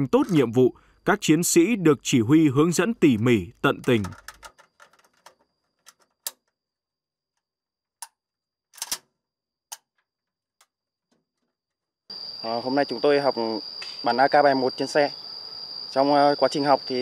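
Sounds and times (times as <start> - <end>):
faint steady high tone: 0.0 - 4.4, 12.1 - 17.0
rifle metallic clicks and knocks: 3.8 - 6.5.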